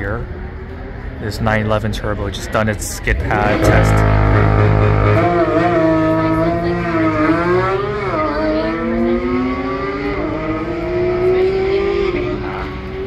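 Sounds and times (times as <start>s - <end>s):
sports car engine revving: 3.2s - 13.0s.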